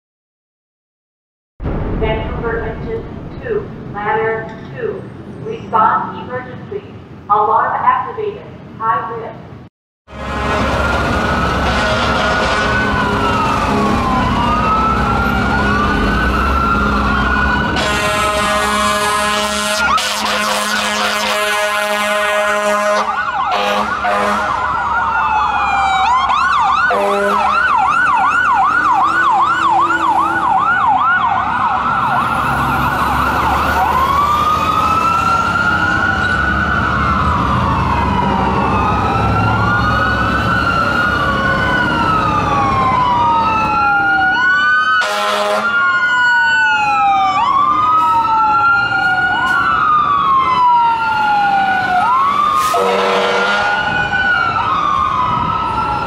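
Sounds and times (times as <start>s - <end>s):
engine rumble: 1.6s - 7.4s
horn blasts: 10.1s - 13.2s, 17.8s - 24.6s, 26.9s - 27.6s, 45.0s - 45.8s, 52.6s - 53.8s
fire engine sirens: 10.1s - 56.0s.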